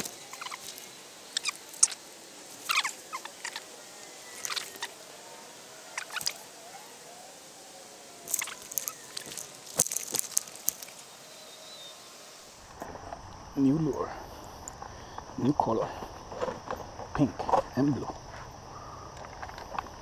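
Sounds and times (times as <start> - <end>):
fishing reel clicks and rustles: 8.3 - 11.1.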